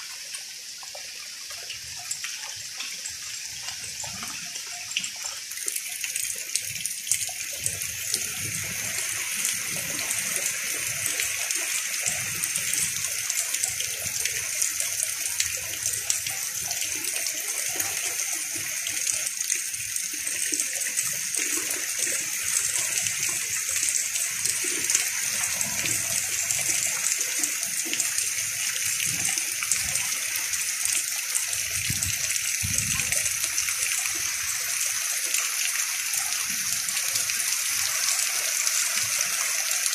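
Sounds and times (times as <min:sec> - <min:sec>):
heavy rain pouring: 0:31.5 - 0:33.9.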